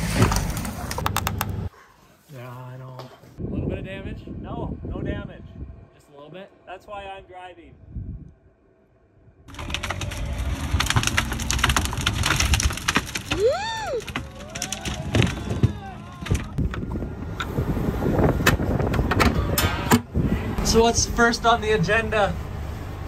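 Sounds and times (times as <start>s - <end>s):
diesel engine running: 9.5s - 13.2s
branches cracking and splintering: 9.5s - 16.9s.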